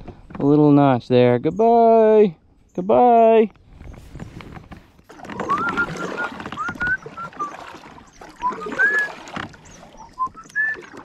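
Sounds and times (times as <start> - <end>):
paddle swishing in water: 3.6 - 11.0
bird whistling song: 5.4 - 11.0.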